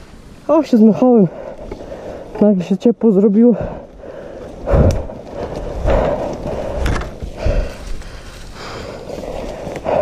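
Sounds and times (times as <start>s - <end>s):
heavy out-of-breath breathing: 1.2s - 2.4s, 3.5s - 10.0s
dirt bike being handled: 5.2s - 10.0s.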